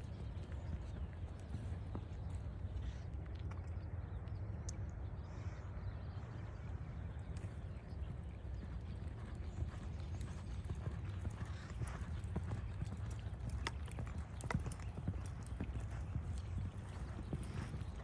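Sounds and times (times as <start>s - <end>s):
horse hoofbeats on sand: 8.1s - 18.0s.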